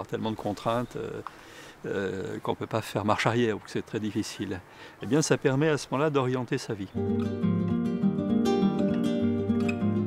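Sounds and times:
acoustic guitar music: 0:06.9 - 0:10.0.

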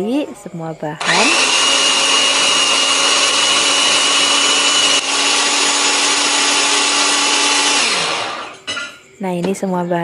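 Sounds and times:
food chopper motor running: 0:01.0 - 0:08.7.

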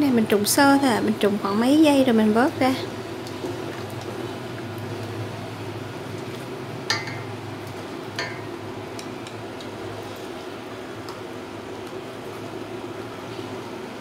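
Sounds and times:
boiling water: 0:00.0 - 0:14.0
steady background hum: 0:00.0 - 0:14.0
chopsticks clinking on steel pot: 0:06.9 - 0:07.3, 0:08.2 - 0:09.4.

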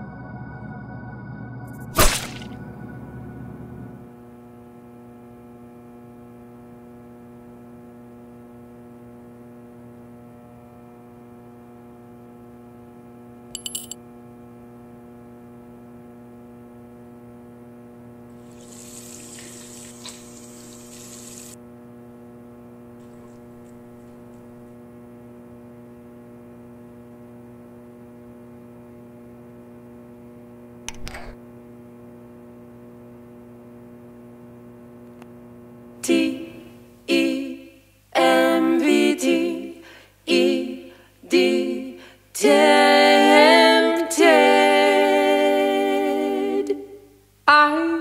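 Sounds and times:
electrical mains hum: 0:00.0 - 0:48.0
water running from sink tap: 0:18.4 - 0:21.6.

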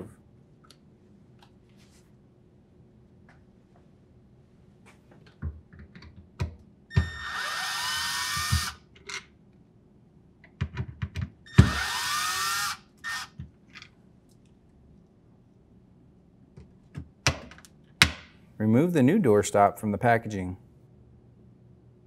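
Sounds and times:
cordless drill running: 0:07.0 - 0:08.8, 0:11.5 - 0:13.4.

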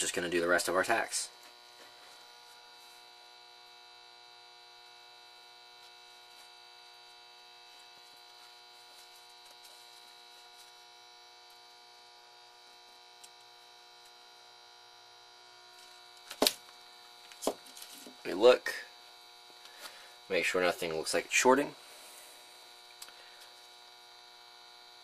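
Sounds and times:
faint electrical hum: 0:00.0 - 0:25.0.

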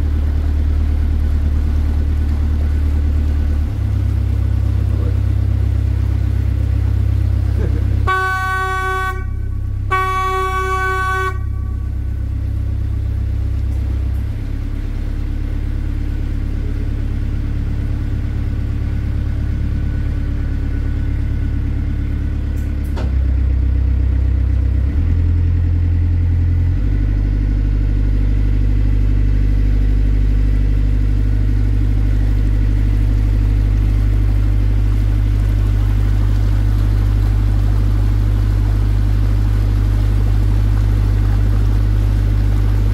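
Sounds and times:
boat engine running: 0:00.0 - 0:42.9
boat horn: 0:07.9 - 0:12.2.

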